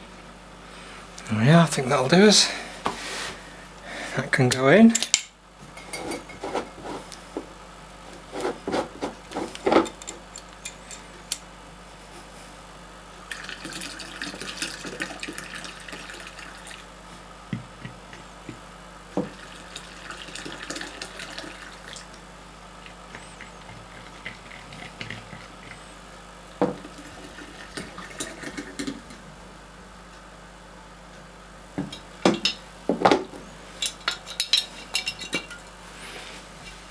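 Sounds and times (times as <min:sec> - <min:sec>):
liquid pouring and splashing: 0:13.3 - 0:16.8, 0:19.4 - 0:22.0.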